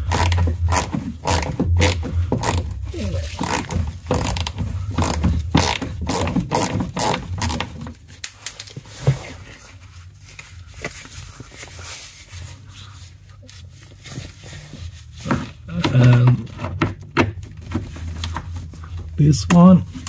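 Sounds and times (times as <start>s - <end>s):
faint handling sounds: 7.9s - 20.0s.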